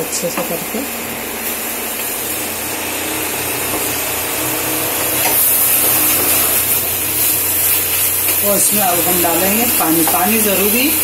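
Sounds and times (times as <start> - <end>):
food sizzling in a pan: 0.1 - 11.0.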